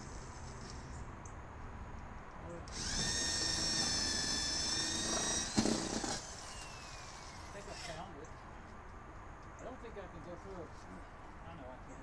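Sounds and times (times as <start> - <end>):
electric drill boring: 2.7 - 7.9.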